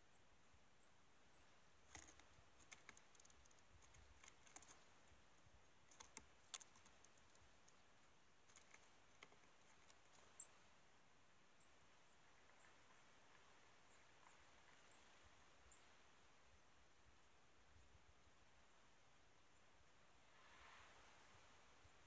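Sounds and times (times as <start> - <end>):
small birds chirping: 0.0 - 10.8, 11.5 - 16.1
light clicks and taps: 1.9 - 4.8, 5.9 - 7.8.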